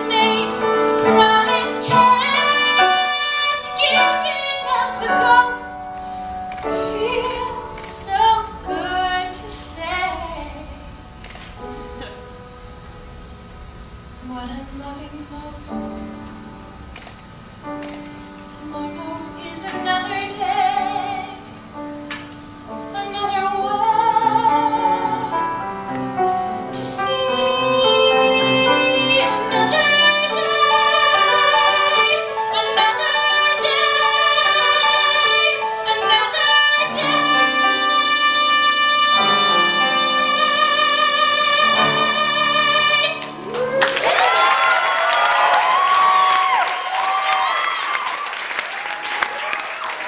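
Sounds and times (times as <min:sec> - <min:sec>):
woman singing: 0:00.0 - 0:11.0, 0:14.2 - 0:16.2, 0:18.5 - 0:21.5, 0:22.9 - 0:25.6, 0:26.7 - 0:43.8
audience applause and cheering: 0:43.2 - 0:50.0.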